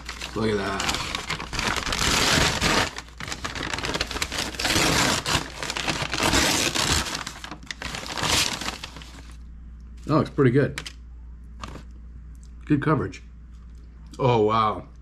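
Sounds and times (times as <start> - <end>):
paper bag crinkling: 0.0 - 9.4, 11.6 - 11.9.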